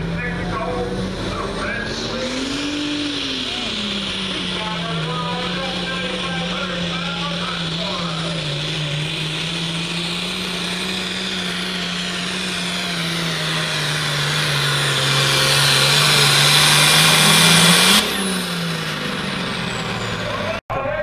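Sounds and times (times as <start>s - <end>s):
tractor diesel engine under load: 0.0s - 21.0s.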